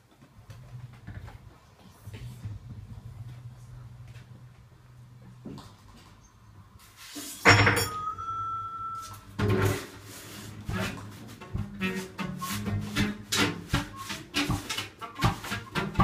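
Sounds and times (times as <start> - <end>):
high held tone: 7.5 - 9.4
experimental improvised music: 9.3 - 16.0.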